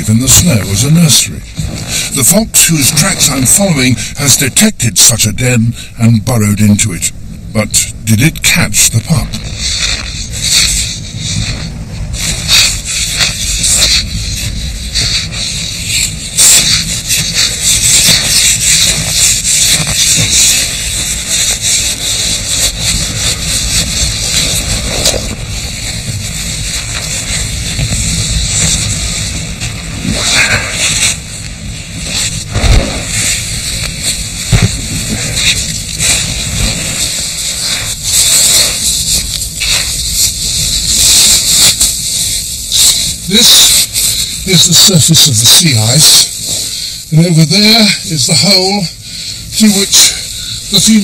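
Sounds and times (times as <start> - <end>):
steady low rumble: 0.0 - 51.0
crunching and scraping snow: 8.5 - 48.9, 49.6 - 51.0.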